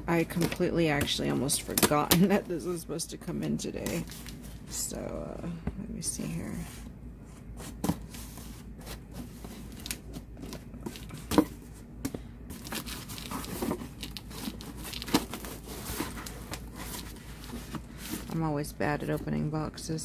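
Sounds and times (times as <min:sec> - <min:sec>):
cardboard flaps rustling: 0:06.7 - 0:18.4.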